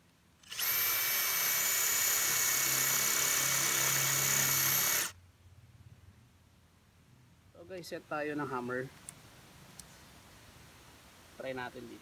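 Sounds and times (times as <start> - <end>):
drill boring into concrete: 0.4 - 5.1.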